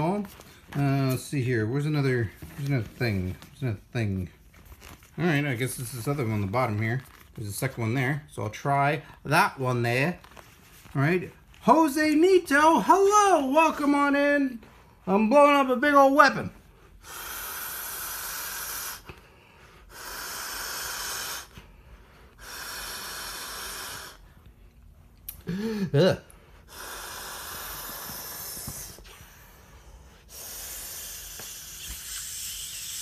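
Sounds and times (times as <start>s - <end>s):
person blowing into inflatable valve: 17.0s - 19.2s, 19.8s - 21.7s, 22.3s - 24.3s, 26.6s - 33.0s.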